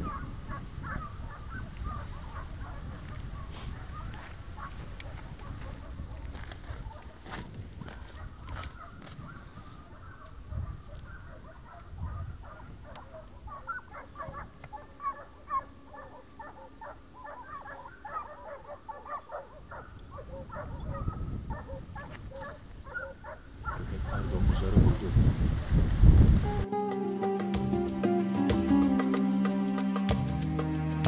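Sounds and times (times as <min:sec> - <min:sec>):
chorus of animal calls: 0:00.0 - 0:05.6, 0:08.6 - 0:22.2.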